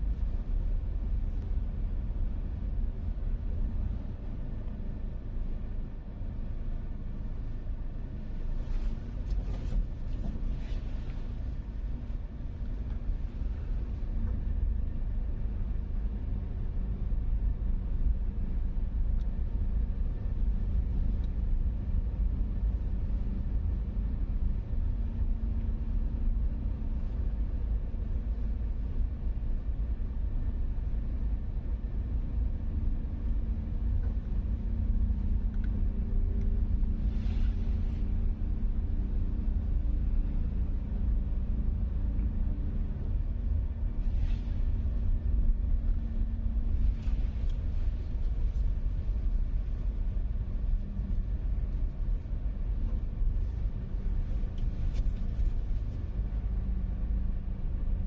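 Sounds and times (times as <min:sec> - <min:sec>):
faint engine hum: 0:00.0 - 0:58.0
road noise rumble in car: 0:00.0 - 0:58.0.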